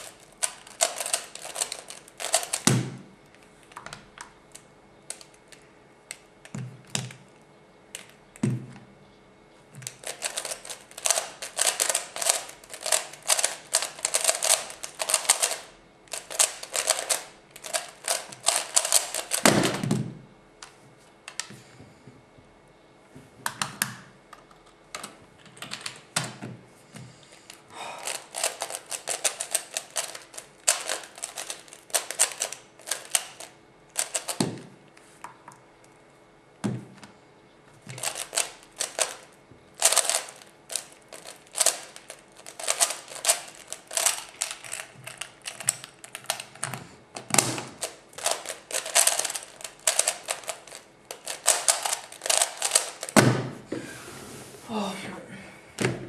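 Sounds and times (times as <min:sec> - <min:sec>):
puzzle cube clicking: 0:09.8 - 0:19.5, 0:28.0 - 0:34.4, 0:39.8 - 0:46.6, 0:47.2 - 0:53.2.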